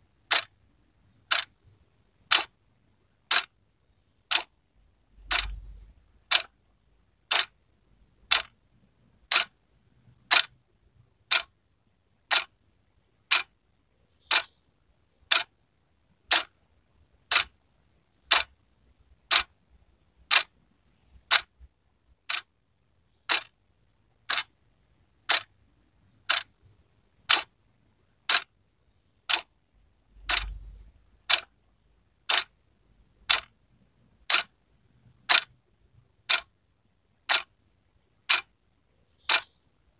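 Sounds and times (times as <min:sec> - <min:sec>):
wall clock ticking: 0:00.2 - 0:02.6, 0:03.2 - 0:04.6, 0:05.2 - 0:06.6, 0:07.2 - 0:07.6, 0:08.2 - 0:08.6, 0:09.2 - 0:10.6, 0:11.2 - 0:11.6, 0:12.2 - 0:12.6, 0:13.2 - 0:13.6, 0:14.2 - 0:14.6, 0:15.2 - 0:15.6, 0:16.2 - 0:16.6, 0:17.2 - 0:18.6, 0:19.2 - 0:19.6, 0:20.2 - 0:22.6, 0:23.2 - 0:23.6, 0:24.2 - 0:24.6, 0:25.2 - 0:27.6, 0:28.2 - 0:28.6, 0:29.2 - 0:29.6, 0:30.2 - 0:31.6, 0:32.2 - 0:32.6, 0:33.2 - 0:33.6, 0:34.2 - 0:36.6, 0:37.2 - 0:37.6, 0:38.2 - 0:39.6.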